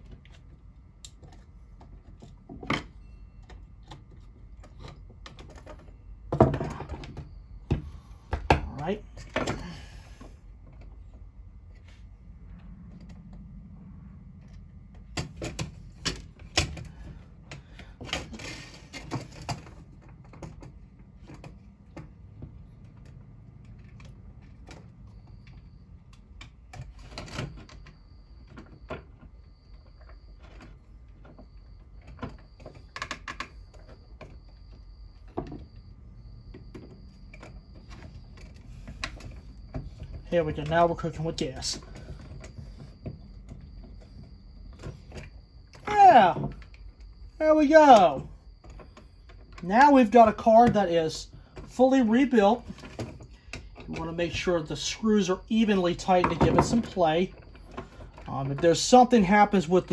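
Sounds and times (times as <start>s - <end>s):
low steady hum: 0.0s - 59.9s.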